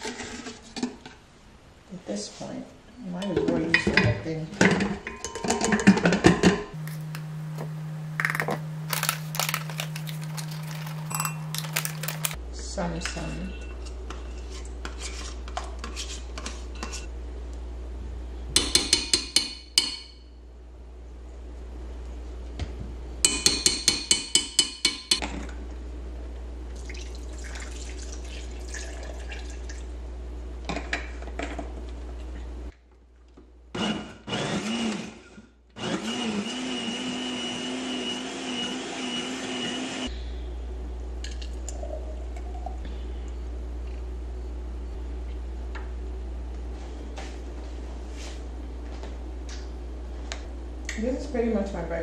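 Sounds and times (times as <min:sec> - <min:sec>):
steady low hum: 0:01.2 - 0:33.8, 0:40.1 - 0:52.0
paper pouch crinkling: 0:08.2 - 0:12.4
sharp glass clinks: 0:11.1 - 0:11.6.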